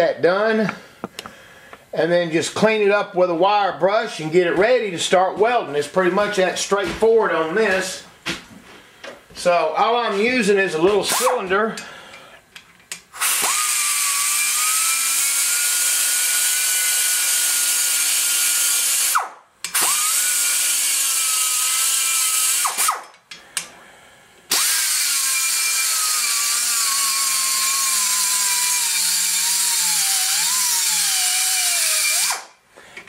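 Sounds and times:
die grinder whining: 0:13.2 - 0:23.0, 0:24.5 - 0:32.5.

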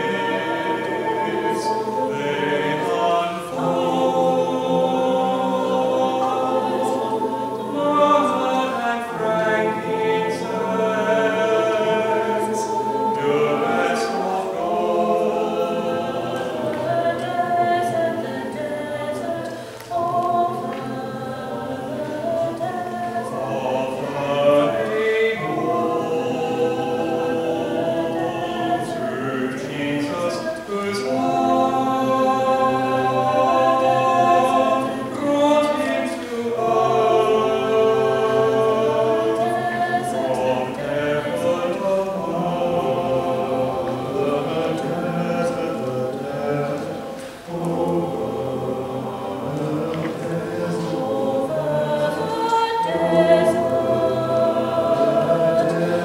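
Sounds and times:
church choir singing: 0:00.0 - 0:56.0.

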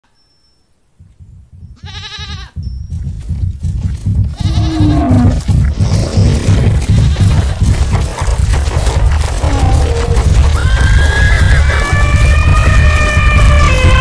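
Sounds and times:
rumble of galloping hooves: 0:00.8 - 0:14.0
sheep bleating: 0:01.8 - 0:02.6, 0:04.4 - 0:05.4, 0:06.2 - 0:07.7, 0:09.4 - 0:14.0.

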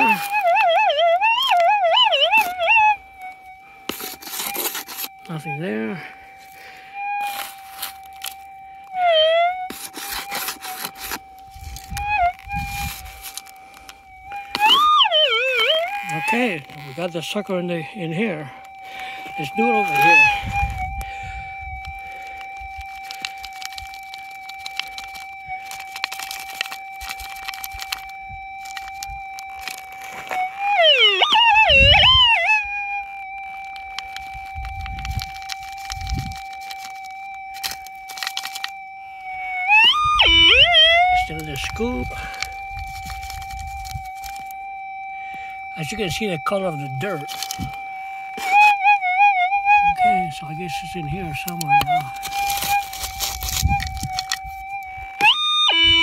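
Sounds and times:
dirt and gravel crackling: 0:00.0 - 0:56.0
metal detector tone: 0:00.0 - 0:56.0
scoop scraping through loose dirt: 0:03.9 - 0:08.4.

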